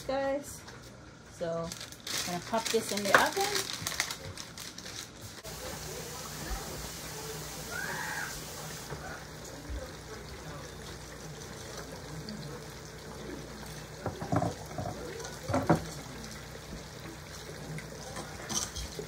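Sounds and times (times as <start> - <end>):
oil bubbling and sizzling: 5.2 - 19.0.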